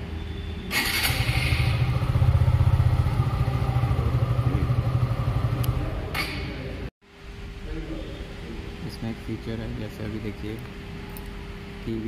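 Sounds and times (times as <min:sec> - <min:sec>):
motorcycle engine revving: 0:00.7 - 0:06.1.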